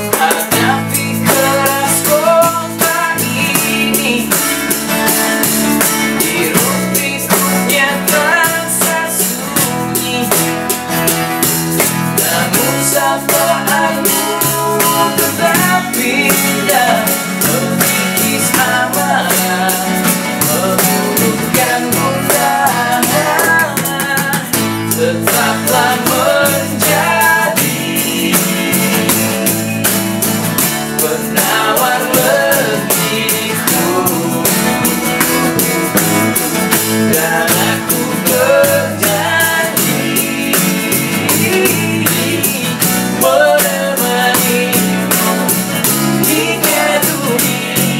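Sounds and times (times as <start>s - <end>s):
drums hit with sticks: 0.0s - 47.9s
electric bass: 0.0s - 47.9s
male lead vocal: 0.0s - 47.9s
strummed acoustic guitars: 0.0s - 47.9s.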